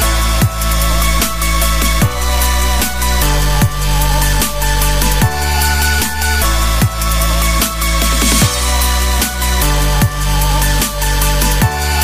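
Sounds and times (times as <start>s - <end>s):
electronic dance music: 0.2s - 9.1s.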